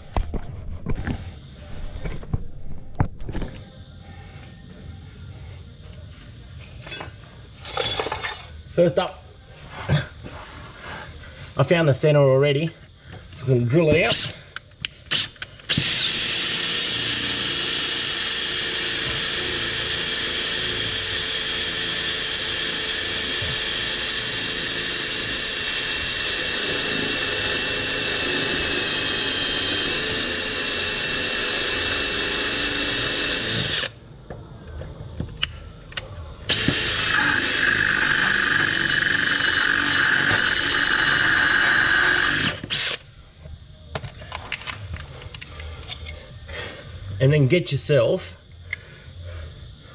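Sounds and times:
cordless drill drilling metal: 15.1 - 34.0, 36.5 - 43.0.

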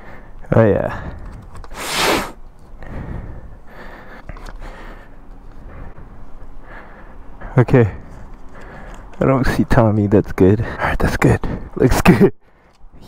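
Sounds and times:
sharp breath: 1.0 - 7.2.

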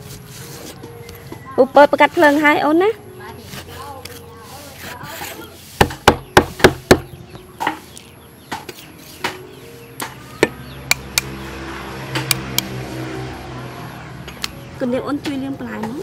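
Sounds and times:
cleaver knocking on chopping board: 5.8 - 7.8, 10.0 - 11.3.

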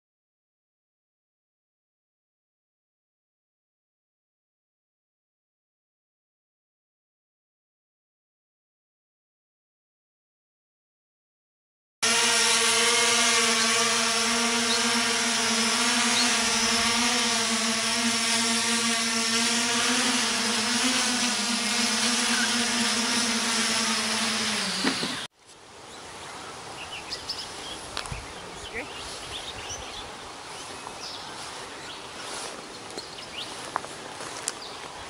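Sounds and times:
drone propeller hum: 12.0 - 25.3.

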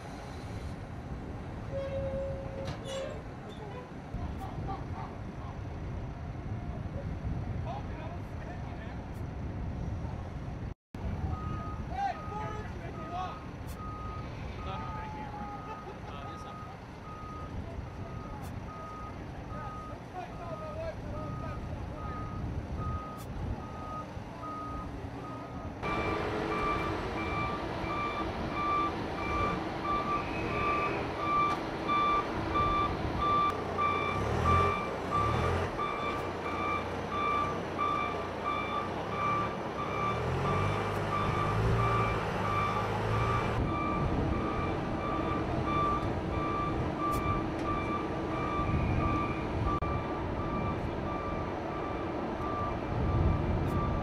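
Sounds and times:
reverse warning alarm beeping: 11.2 - 54.0.

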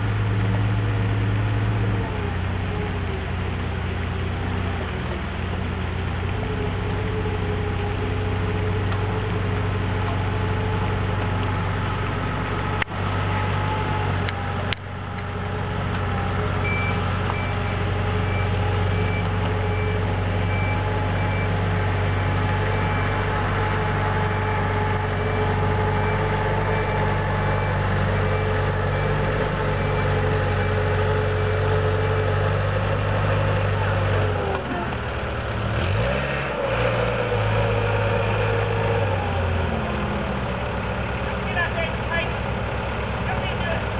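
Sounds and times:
diesel engines running: 0.0 - 43.9
reversing beeper: 15.4 - 33.4.

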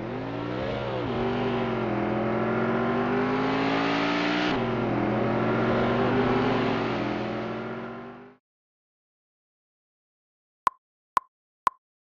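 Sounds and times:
truck engine revving: 0.0 - 8.4.

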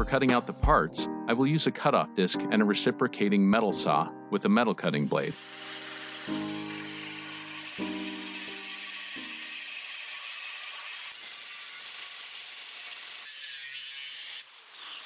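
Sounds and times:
angle grinder cutting steel: 5.1 - 15.0.

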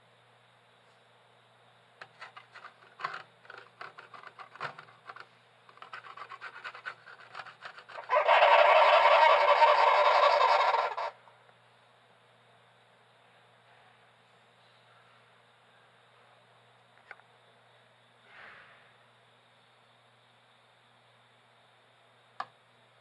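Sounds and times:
sugar glider clicking chatter: 5.8 - 11.1
sugar glider harsh buzzing: 5.8 - 11.2.

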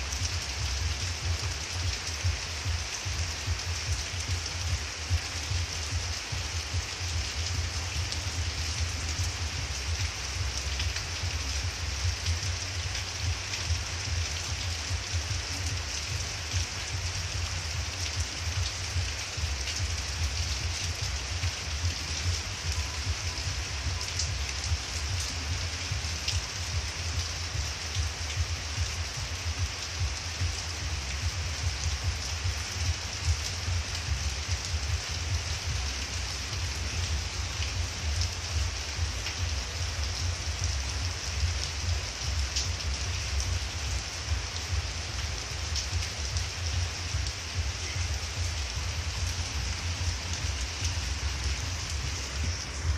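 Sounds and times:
heavy rain on foliage: 0.0 - 52.9.

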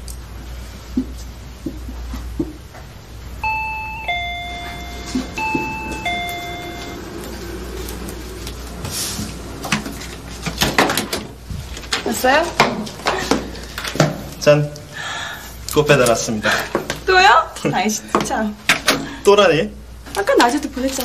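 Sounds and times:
two-tone doorbell chime: 3.4 - 7.4.

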